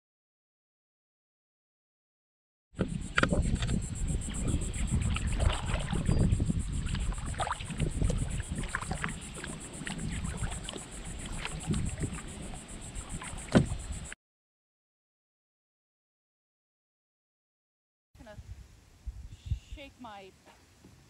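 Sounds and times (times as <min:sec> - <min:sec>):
water splashing against kayak hull: 0:02.8 - 0:14.1
wind rumble on microphone: 0:02.8 - 0:14.2, 0:18.2 - 0:20.0
knock on kayak: 0:13.2 - 0:13.8.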